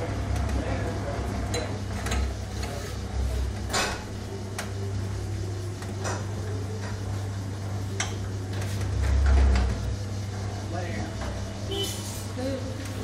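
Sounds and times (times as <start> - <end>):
machine low hum: 0.0 - 13.0.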